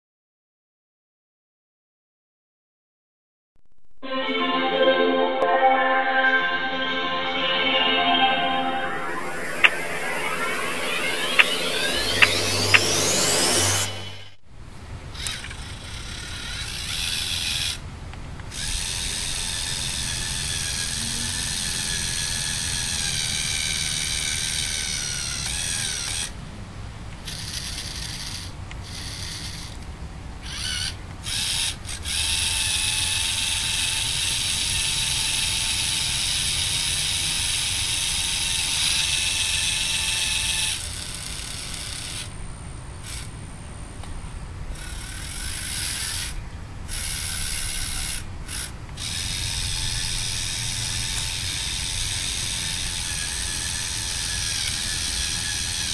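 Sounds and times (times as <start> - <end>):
toy motors whining through gears: 15.2 - 17.8, 27.2 - 29.8, 30.4 - 42.3, 44.8 - 55.9.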